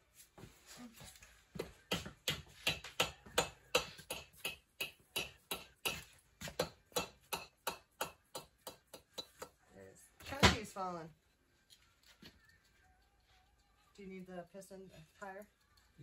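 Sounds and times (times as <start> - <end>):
hammer tapping on metal cylinder: 1.8 - 9.6.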